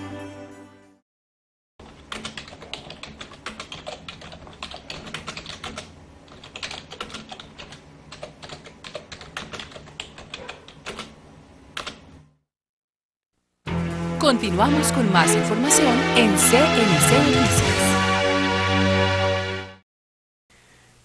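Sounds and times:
choir music: 0.0s - 1.0s, 14.4s - 19.8s
keyboard typing clicks: 1.9s - 11.2s.

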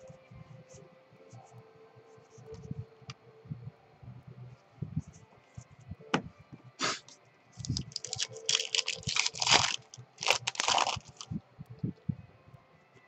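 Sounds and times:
cards clicking: 6.9s - 11.3s
wrapper crinkling: 7.0s - 11.3s.

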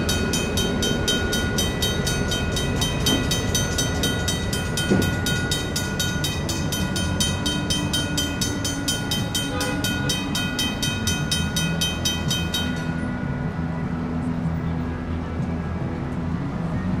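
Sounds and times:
crossing bells ringing: 0.0s - 16.2s
passing train rumble: 0.0s - 17.0s.

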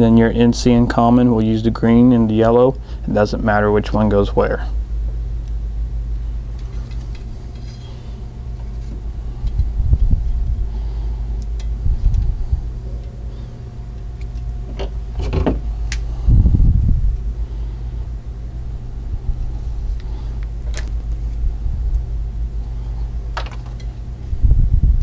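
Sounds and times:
low hum: 0.0s - 25.0s
wire stripper clicks: 11.4s - 12.3s, 13.9s - 16.1s, 20.0s - 22.1s.

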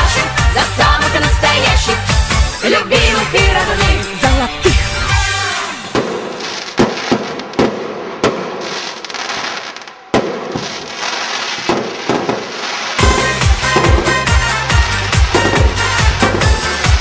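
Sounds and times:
dance music with steady beat: 0.0s - 5.9s, 13.0s - 17.0s
fireworks crackling: 0.0s - 17.0s
fireworks bangs: 3.0s - 17.0s.

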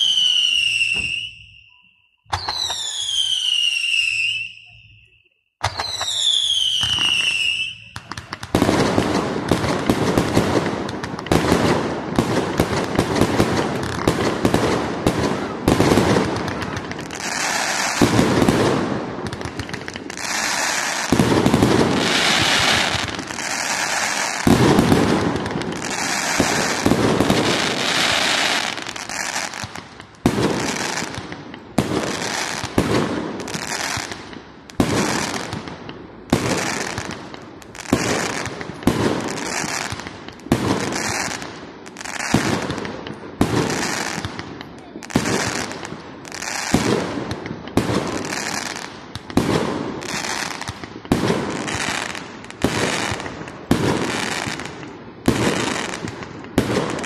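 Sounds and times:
fireworks launches and bursts: 0.0s - 57.0s
fireworks hiss: 6.8s - 44.4s.

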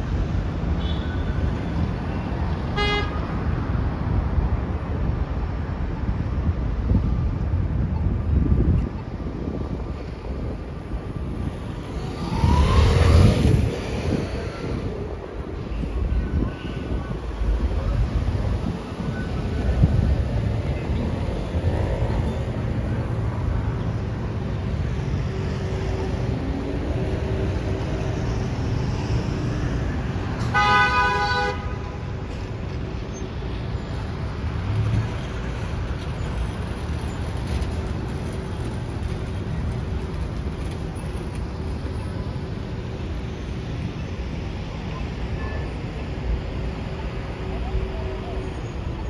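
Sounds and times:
street traffic rumble: 0.0s - 49.0s
vehicle horn honking: 2.8s - 3.2s, 30.5s - 32.0s.

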